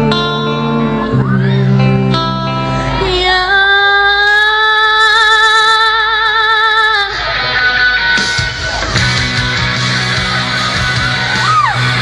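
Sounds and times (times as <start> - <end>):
backing music: 0.0 - 3.5, 7.0 - 12.0
woman singing into a microphone: 2.6 - 7.3.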